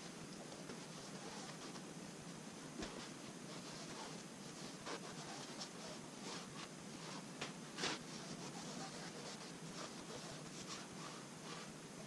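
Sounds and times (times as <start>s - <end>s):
low steady hiss: 0.0s - 12.0s
paintbrush swishes: 2.8s - 11.8s.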